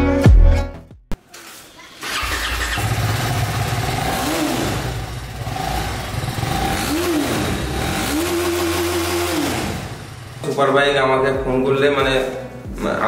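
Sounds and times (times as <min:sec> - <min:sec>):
motorcycle engine idling and revving: 0:01.8 - 0:13.0.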